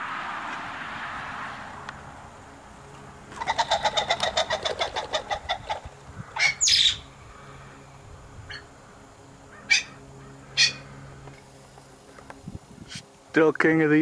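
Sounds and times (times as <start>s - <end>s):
pheasant cackling call: 3.3s - 7.1s, 9.5s - 11.2s.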